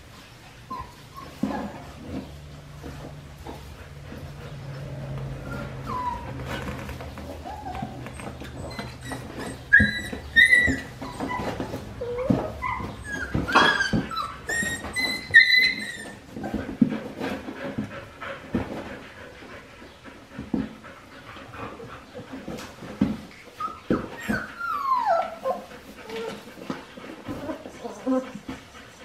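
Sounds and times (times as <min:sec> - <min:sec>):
paws scuffling on beds: 0:00.0 - 0:29.0
puppies whimpering and yipping: 0:00.6 - 0:17.1, 0:21.6 - 0:29.0.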